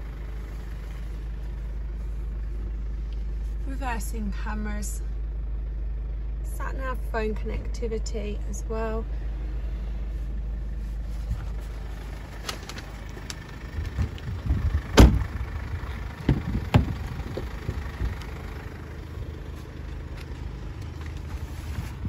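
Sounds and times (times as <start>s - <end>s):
low hum: 0.0s - 22.0s
car door thump: 14.9s - 15.4s, 16.2s - 17.0s.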